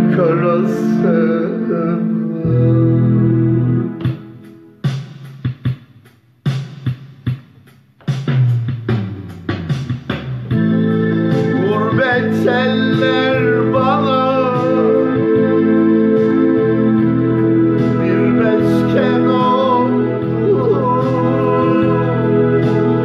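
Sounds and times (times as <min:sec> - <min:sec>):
electronic keyboard playing: 0:10.4 - 0:23.0.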